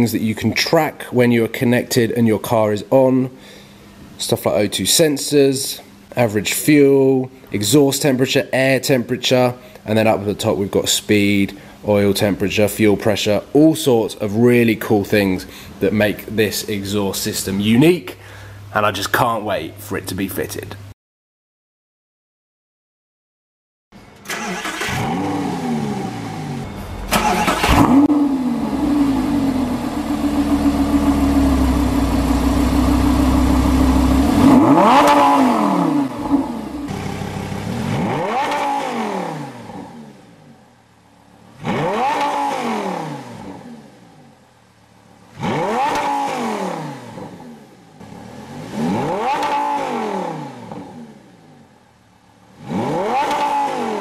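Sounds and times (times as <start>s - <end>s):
sports car engine revving: 24.6s - 40.3s, 41.1s - 44.1s, 45.0s - 51.3s, 52.4s - 54.0s.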